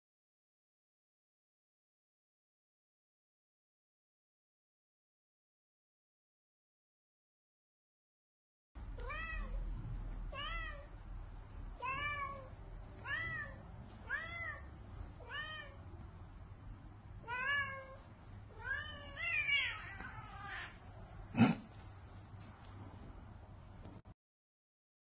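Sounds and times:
cat meowing: 0:09.0 - 0:09.6, 0:10.3 - 0:10.9, 0:11.8 - 0:15.8, 0:17.2 - 0:20.9.

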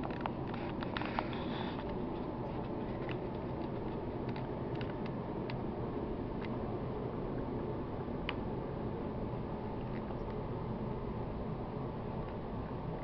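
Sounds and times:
camera handling rumble: 0:00.0 - 0:05.2.

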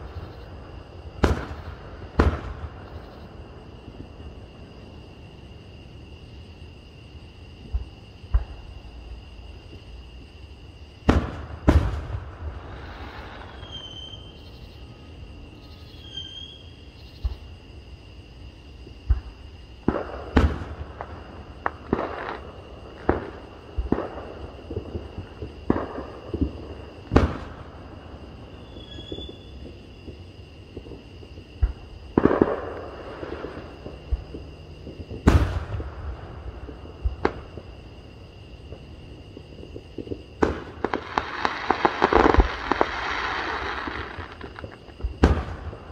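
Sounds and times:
fireworks crackling: 0:00.0 - 0:03.0, 0:11.1 - 0:14.2, 0:19.1 - 0:38.1, 0:38.7 - 0:45.9
fireworks bursting with bangs: 0:00.0 - 0:03.2, 0:11.0 - 0:14.3, 0:19.0 - 0:38.1, 0:38.7 - 0:45.9.

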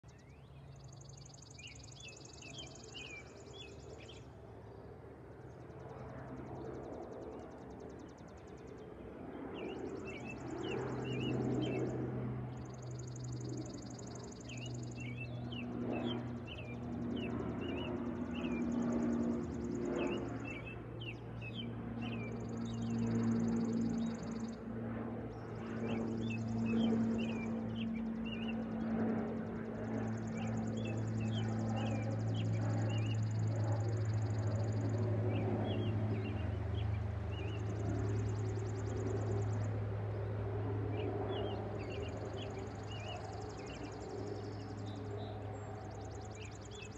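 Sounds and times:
distant propeller plane drone: 0:00.0 - 0:46.9
birds chirping: 0:09.4 - 0:46.9.

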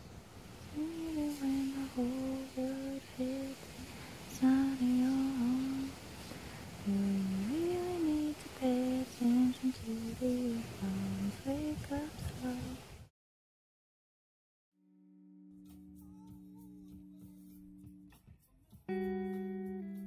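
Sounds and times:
person humming a slow tune: 0:00.6 - 0:13.0, 0:15.3 - 0:18.2.

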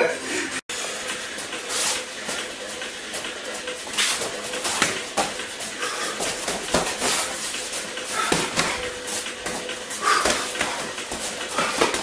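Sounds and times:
feet shuffling on a mat: 0:03.1 - 0:12.0
gloved punches and kicks landing: 0:06.2 - 0:07.4, 0:08.2 - 0:12.0.

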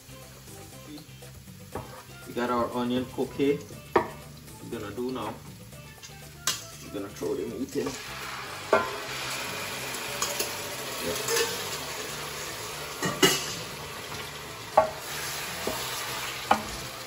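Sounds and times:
chicken sizzling in pan: 0:00.0 - 0:17.0
bowl and spoon knocking pan: 0:08.7 - 0:09.1, 0:13.0 - 0:14.2, 0:14.8 - 0:15.0, 0:15.6 - 0:16.9.

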